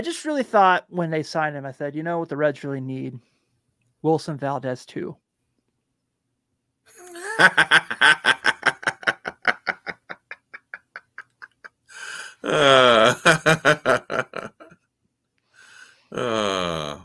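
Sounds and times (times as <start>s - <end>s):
men laughing: 6.9s - 14.7s.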